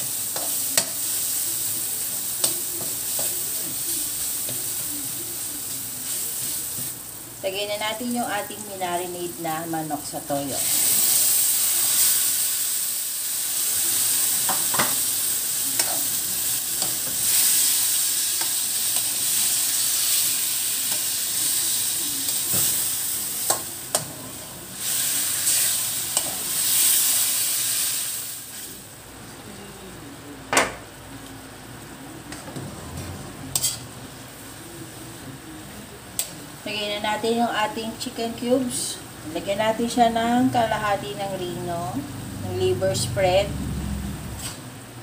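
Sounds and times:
chicken sizzling in hot oil: 0.0s - 28.9s.

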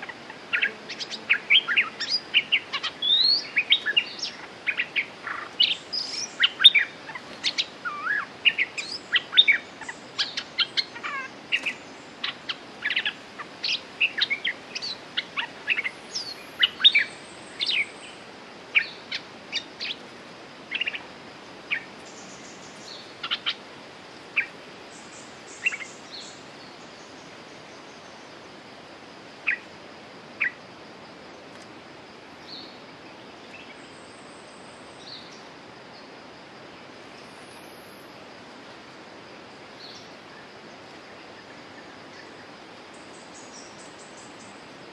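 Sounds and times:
bulbuls chirping and whistling: 0.0s - 18.0s, 24.4s - 26.4s.

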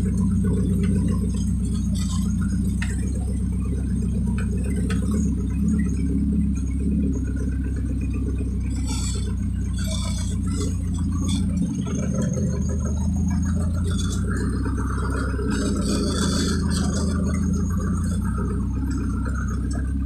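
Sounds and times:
rattles: 0.0s - 20.0s
vehicle engine running: 0.0s - 20.0s.

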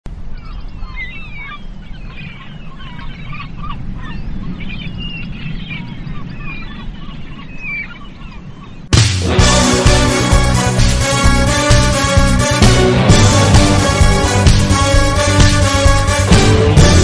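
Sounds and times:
birds chirping and squawking: 0.2s - 8.9s.

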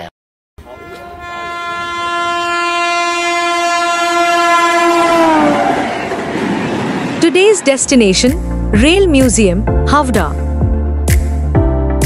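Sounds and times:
train horn long note: 0.6s - 6.0s.

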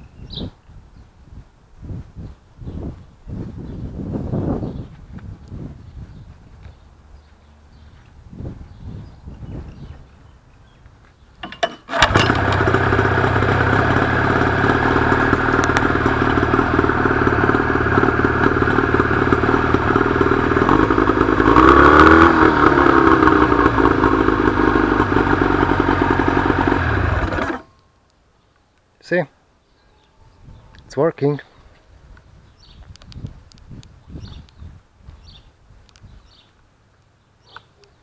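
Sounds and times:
outboard motor running: 11.5s - 27.6s.

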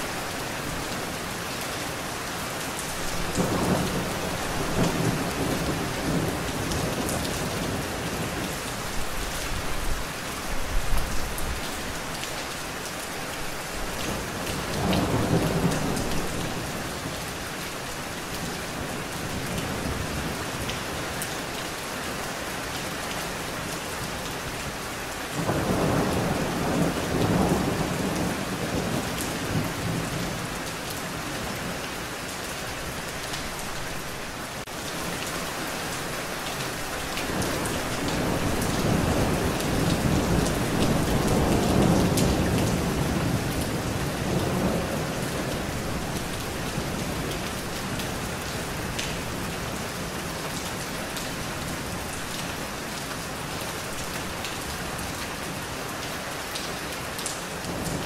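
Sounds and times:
rain splashing: 0.0s - 58.0s.

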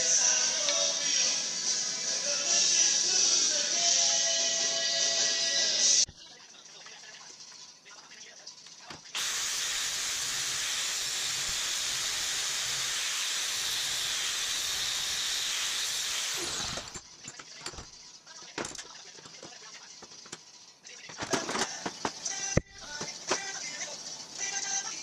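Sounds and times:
angle grinder cutting steel: 9.2s - 17.0s.

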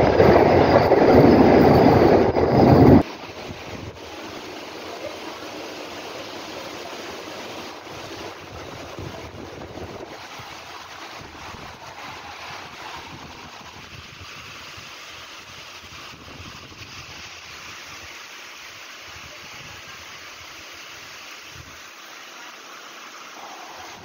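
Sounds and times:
wind rushing on microphone: 0.0s - 4.5s, 7.8s - 18.0s
heavy rain: 0.0s - 24.0s.

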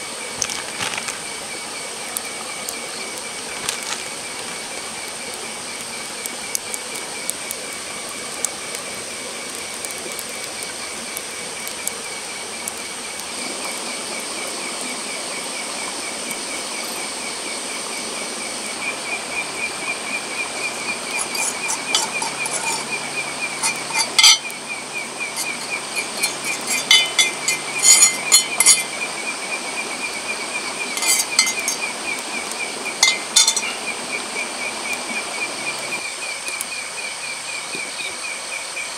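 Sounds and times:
night insects trilling: 0.0s - 38.9s
utensil clinking on metal pan: 21.1s - 23.0s, 23.6s - 24.5s, 25.4s - 29.0s, 31.0s - 31.9s, 33.0s - 33.8s.

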